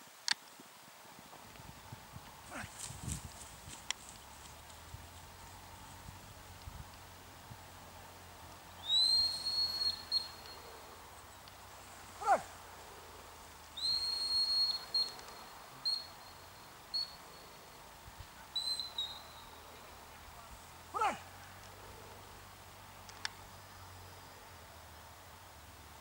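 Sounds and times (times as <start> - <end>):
dog whistle blasts: 8.8 - 10.5, 13.8 - 15.2.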